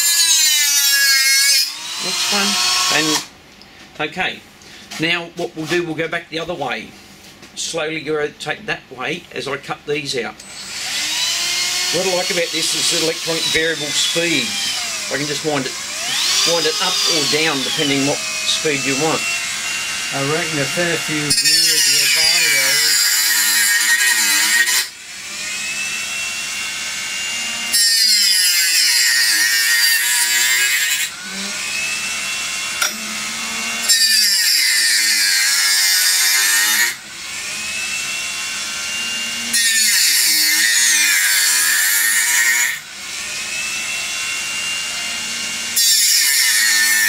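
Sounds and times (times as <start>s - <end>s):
rotary saw cutting wood: 0.0s - 3.3s, 10.4s - 47.0s
rotary tool whining freely: 0.0s - 3.3s, 10.4s - 47.0s.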